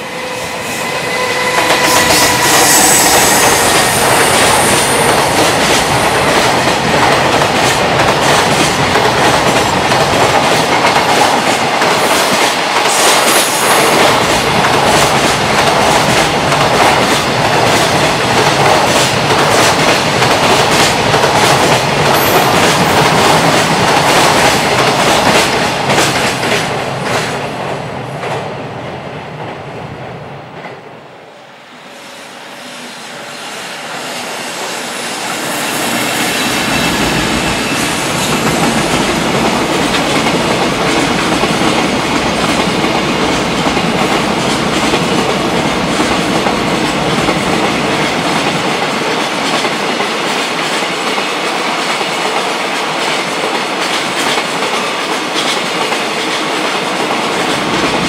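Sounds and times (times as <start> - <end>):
train wheels clacking over rail joints: 1.4 - 27.4, 35.8 - 58.0.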